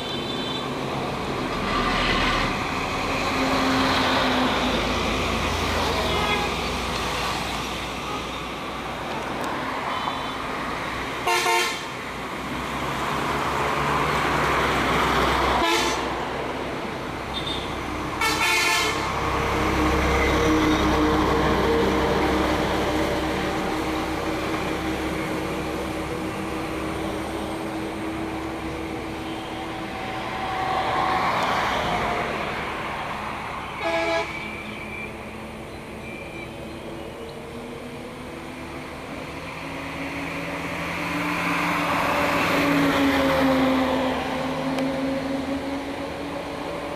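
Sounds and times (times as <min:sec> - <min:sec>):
road traffic: 0:00.0 - 0:46.9
vehicle horn blasts: 0:11.3 - 0:11.8, 0:17.4 - 0:19.1, 0:33.8 - 0:34.5.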